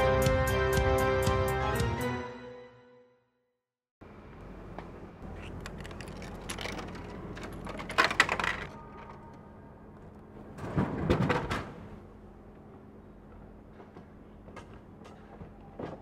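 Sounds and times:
vending machine clicking and rattling: 0:05.3 - 0:09.0.

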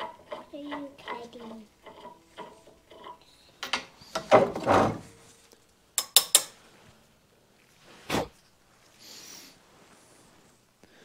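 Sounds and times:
metal clicks and clanks: 0:00.0 - 0:04.7
metal scraping rattle: 0:00.0 - 0:05.3
thump: 0:04.2 - 0:05.1.

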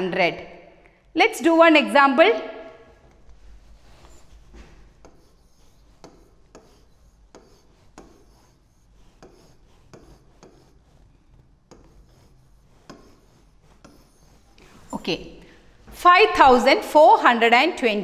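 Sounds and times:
stylus scratching on glass: 0:02.9 - 0:15.3.

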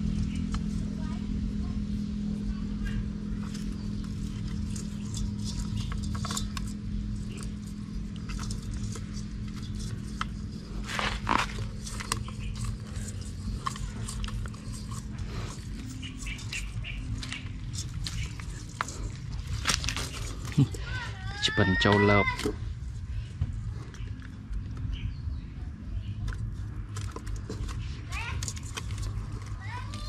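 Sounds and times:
steady low hum: 0:00.0 - 0:30.0
rustling of mesh net: 0:03.4 - 0:21.0.

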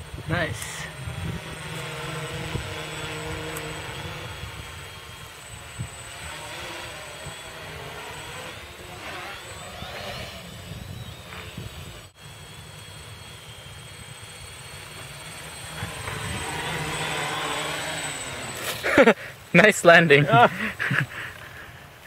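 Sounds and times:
wind rumble on microphone: 0:00.0 - 0:07.9, 0:09.6 - 0:12.1, 0:15.8 - 0:16.9
drone motors whining: 0:00.0 - 0:22.0.

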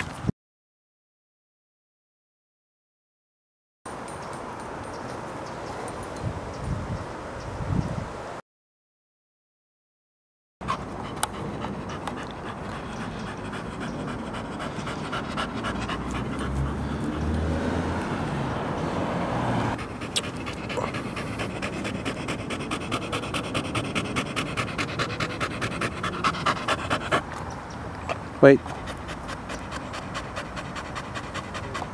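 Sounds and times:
dog panting hard: 0:10.6 - 0:17.5, 0:19.7 - 0:31.9.

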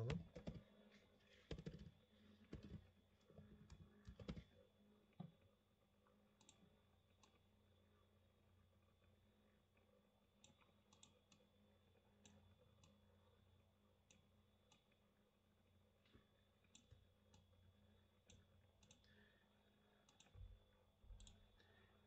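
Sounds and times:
low electrical hum: 0:00.0 - 0:22.0
computer mouse clicks: 0:01.5 - 0:05.5, 0:06.4 - 0:07.4, 0:09.8 - 0:11.5, 0:12.2 - 0:13.0, 0:14.0 - 0:15.0, 0:16.6 - 0:17.6, 0:18.2 - 0:19.2, 0:20.0 - 0:20.4, 0:21.1 - 0:21.8.

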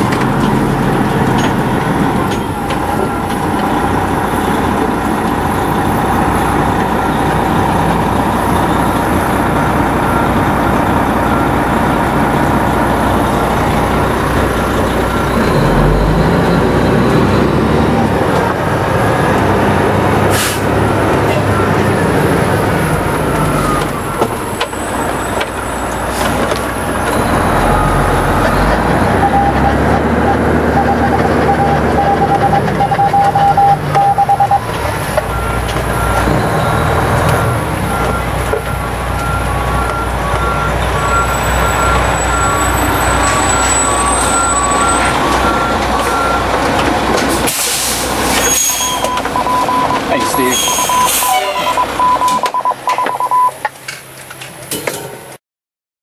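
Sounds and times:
diesel truck engine running: 0:00.0 - 0:55.4
air brake hiss: 0:20.3 - 0:20.7, 0:47.5 - 0:48.4.

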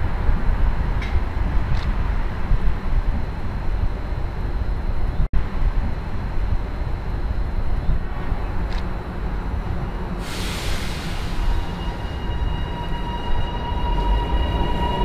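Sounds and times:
electric train rumbling: 0:00.0 - 0:15.0
hiss: 0:10.2 - 0:12.1.

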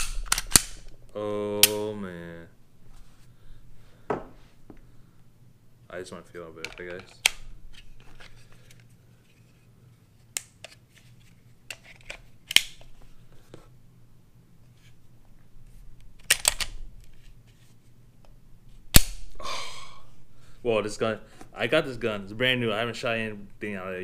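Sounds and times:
pistol parts clicking: 0:00.0 - 0:00.9, 0:11.7 - 0:12.9, 0:16.1 - 0:17.2.

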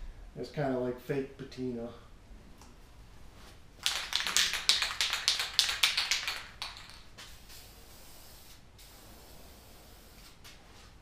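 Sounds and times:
spray can rattling: 0:03.8 - 0:09.0.

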